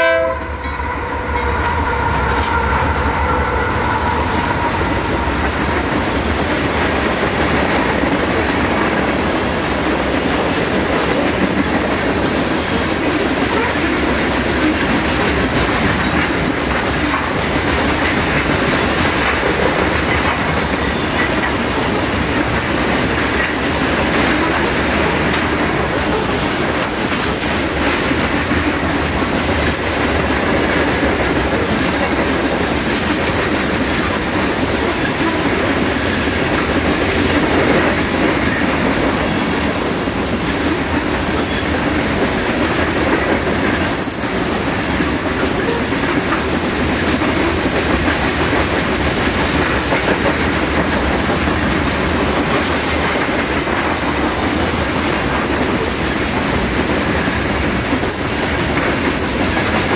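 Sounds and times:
high squeal of wheels on rail: 0.0 - 5.5, 42.6 - 47.7, 57.2 - 59.8
freight train wheels rumbling on rail: 0.0 - 59.9
wheels clicking over rail joints: 3.8 - 59.9.

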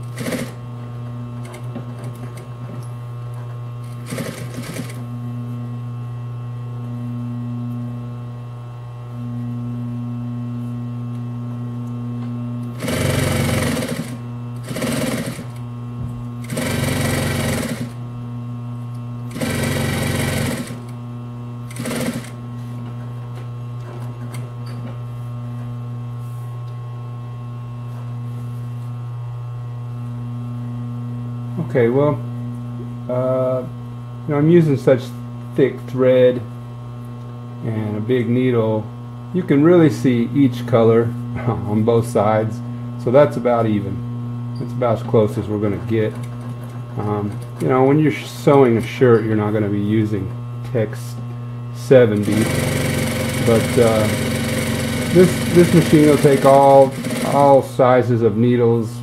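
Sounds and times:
sewing machine stitching: 0.0 - 0.6, 3.8 - 5.0, 12.8 - 15.6, 16.4 - 18.0, 19.3 - 20.9, 21.7 - 22.4, 52.2 - 57.6
sewing machine motor humming: 0.0 - 2.8, 3.8 - 5.1, 12.6 - 15.7, 16.4 - 18.0, 19.2 - 21.0, 21.6 - 22.4, 52.0 - 57.8.

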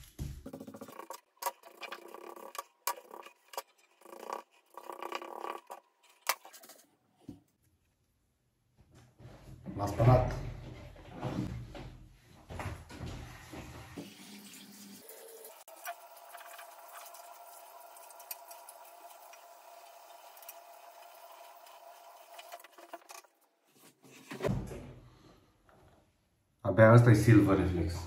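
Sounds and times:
tap water running into sink: 14.0 - 23.1.

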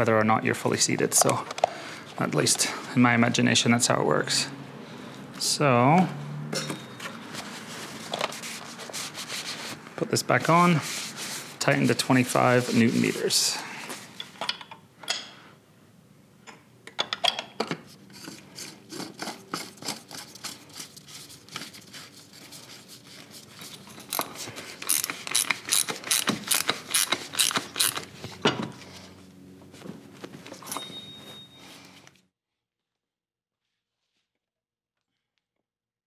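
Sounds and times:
ratchet clicking: 24.1 - 28.0
short high beep: 30.7 - 31.8.

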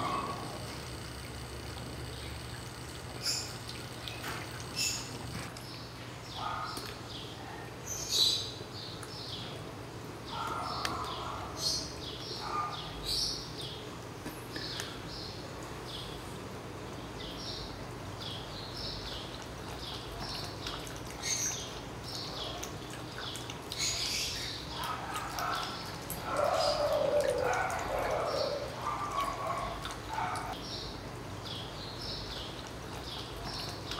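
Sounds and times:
small birds chirping: 0.0 - 9.6, 17.0 - 33.9.

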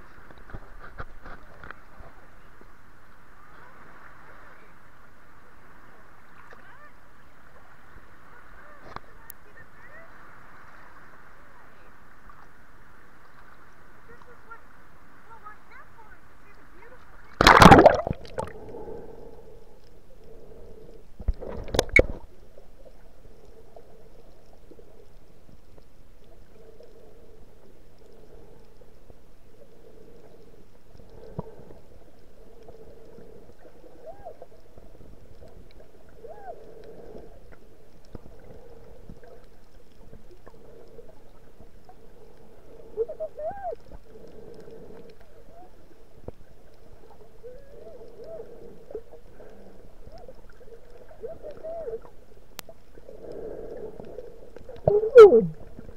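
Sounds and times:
dull underwater hum: 0.0 - 55.9
hoot-like tones: 54.8 - 55.6.

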